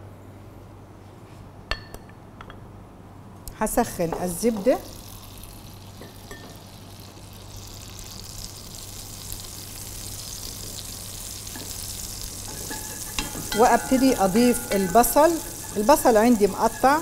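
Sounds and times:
butter sizzling in a pot: 0:04.3 - 0:17.0.

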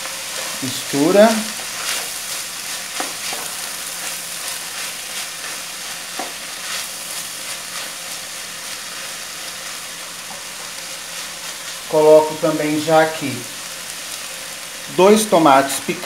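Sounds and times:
meat sizzling in a pot: 0:00.0 - 0:16.0.

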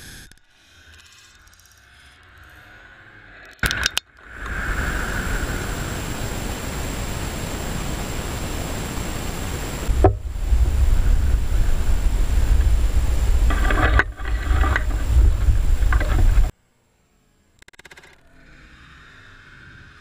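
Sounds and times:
sharp click: 0:03.6 - 0:04.1
sharp cracks: 0:03.6 - 0:04.3
loud rushing hiss: 0:04.3 - 0:16.5.

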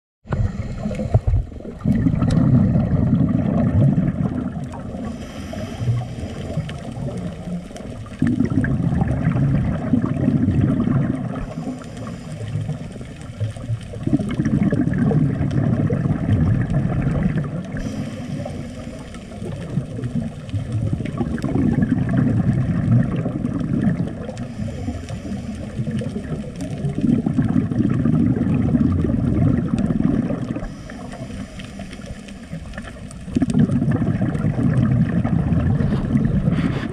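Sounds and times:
rumble of exhaled bubbles: 0:00.2 - 0:36.9
hissing regulator inhale: 0:00.3 - 0:01.4, 0:04.9 - 0:07.0, 0:11.4 - 0:13.2, 0:17.7 - 0:19.7, 0:24.3 - 0:26.3, 0:30.6 - 0:33.0, 0:35.8 - 0:36.9.

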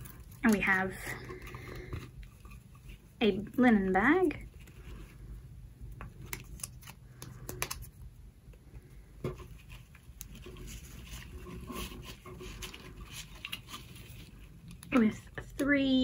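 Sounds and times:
paper filler rustling: 0:09.4 - 0:15.0.

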